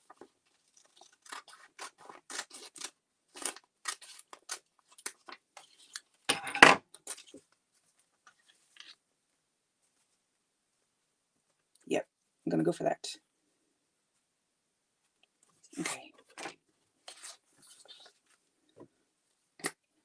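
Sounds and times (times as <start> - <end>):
scissors snipping paper: 0.7 - 6.0.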